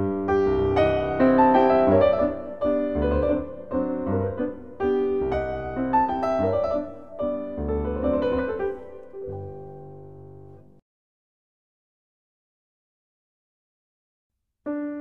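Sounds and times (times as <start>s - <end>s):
piano music: 0.0s - 10.8s.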